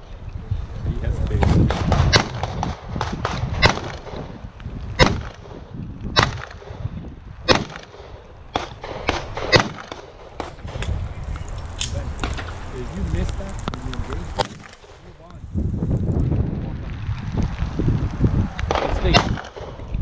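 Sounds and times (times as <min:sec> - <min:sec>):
pistol shots with echo: 0:01.4 - 0:04.3, 0:05.0 - 0:06.8, 0:07.5 - 0:10.8, 0:14.4 - 0:15.0, 0:18.7 - 0:19.8.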